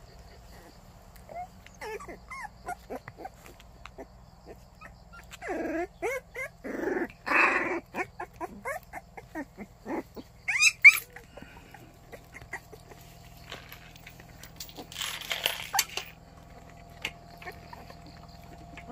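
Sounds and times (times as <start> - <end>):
puppies whimpering: 0.0 - 13.5, 15.7 - 18.9
puppy shrill squeals: 10.5 - 11.2.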